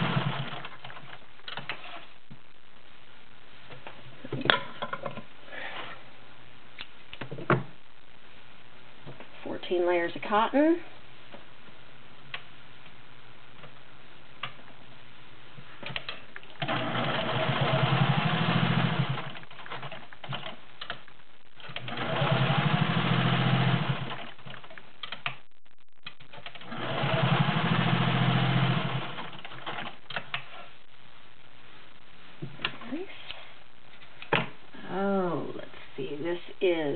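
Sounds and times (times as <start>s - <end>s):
sewing machine stitching: 0.0s - 1.1s, 16.6s - 20.4s, 21.6s - 24.6s, 26.5s - 29.9s.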